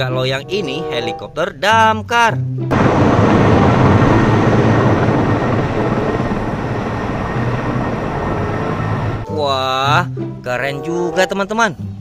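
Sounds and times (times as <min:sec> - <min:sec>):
helicopter flying overhead: 0:02.7 - 0:09.3.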